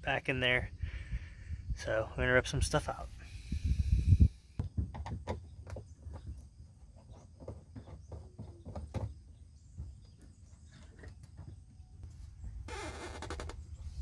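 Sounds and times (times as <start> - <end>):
wind rumble on microphone: 0.6 - 5.0
knocks and creaks in plastic kayak: 4.6 - 11.8, 12.7 - 14.0.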